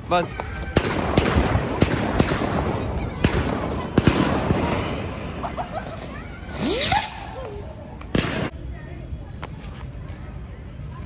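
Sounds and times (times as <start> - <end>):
firecrackers crackling and popping: 0.2 - 8.6
firecracker bangs: 0.7 - 5.4
firecracker sputtering with hiss: 6.0 - 7.6.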